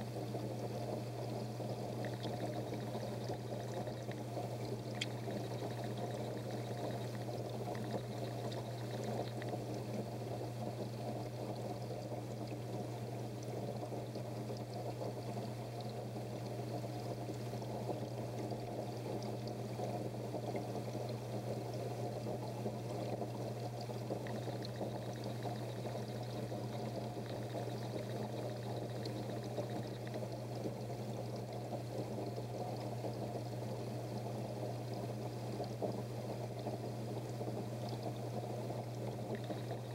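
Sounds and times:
aquarium water splashing: 0:00.0 - 0:39.9
constant low hum: 0:00.0 - 0:39.9.

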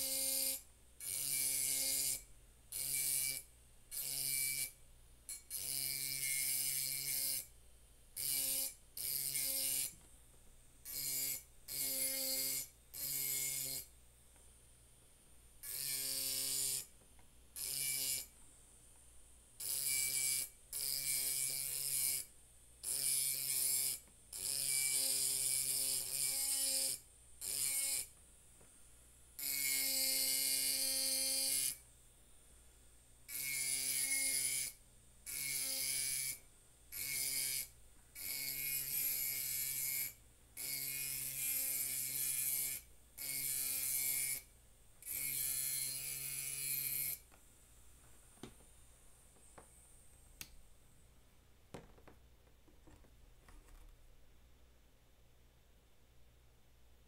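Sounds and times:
engraving pen grinding glass: 0:15.6 - 0:16.9, 0:33.3 - 0:36.4, 0:37.0 - 0:47.2.

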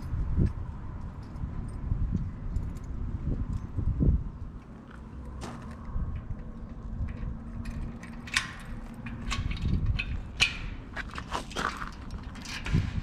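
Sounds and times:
footsteps on outdoor path: 0:04.5 - 0:07.8, 0:10.2 - 0:13.0.

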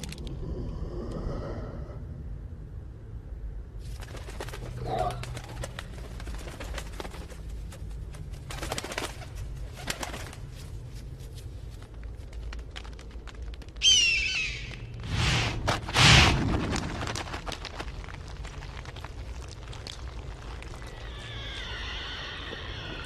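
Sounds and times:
clicks and crackles: 0:00.0 - 0:01.2, 0:11.7 - 0:13.8, 0:16.4 - 0:21.4
steady low rumble: 0:00.0 - 0:13.8.

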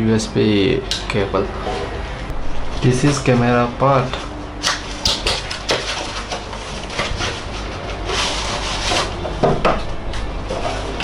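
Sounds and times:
cardboard rubbing and scraping: 0:05.6 - 0:09.4.

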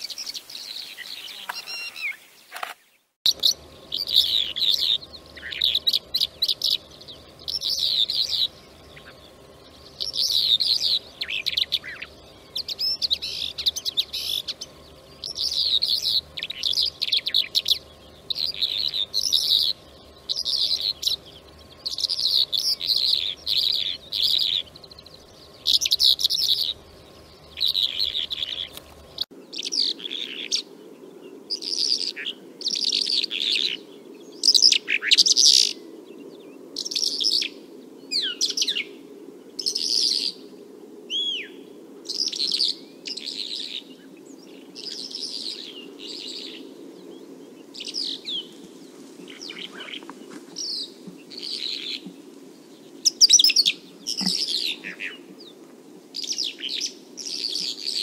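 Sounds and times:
lark singing: 0:00.0 - 0:02.7, 0:03.3 - 0:30.7, 0:41.1 - 0:52.2, 0:52.9 - 0:55.6.

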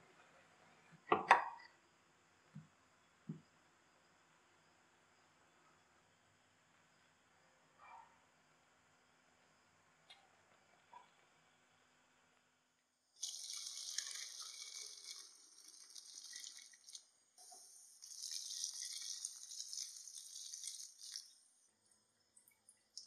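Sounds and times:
water pouring through mesh strainer: 0:13.2 - 0:21.5.

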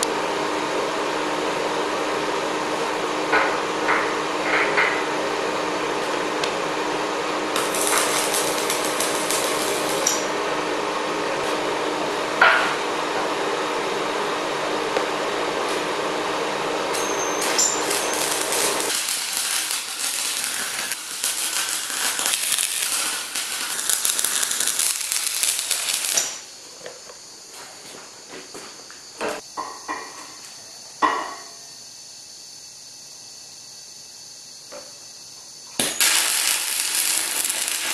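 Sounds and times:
steady hum: 0:05.3 - 0:12.4
welding arc crackling: 0:07.5 - 0:10.4, 0:16.9 - 0:26.5, 0:35.8 - 0:37.9.

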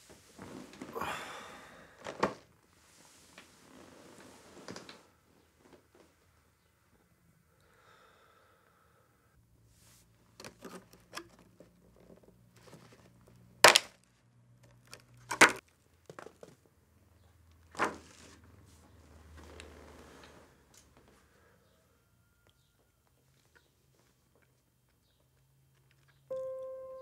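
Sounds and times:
plastic box clicks and crackles: 0:10.4 - 0:16.4.

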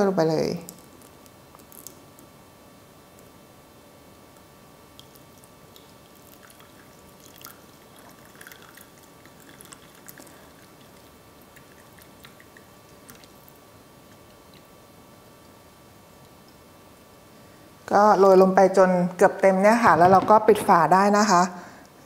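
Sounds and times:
small drips and clicks: 0:00.7 - 0:02.3, 0:04.9 - 0:14.7
water trickling into coffee filter: 0:05.0 - 0:14.7.

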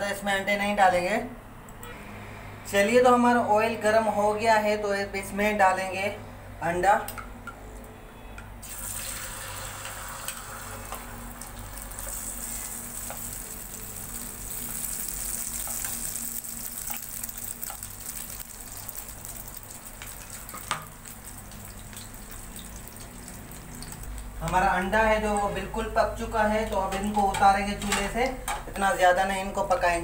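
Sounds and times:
egg sizzling in hot oil: 0:08.6 - 0:25.4.

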